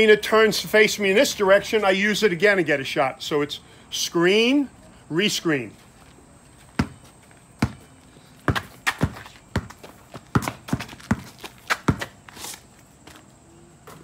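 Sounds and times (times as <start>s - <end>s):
basketball bouncing on asphalt: 6.5s - 14.0s.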